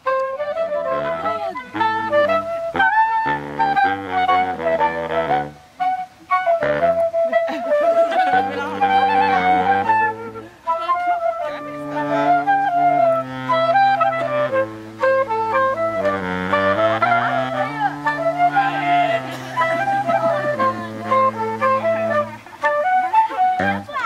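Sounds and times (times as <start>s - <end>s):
saxophones playing a tune: 0.0s - 24.0s.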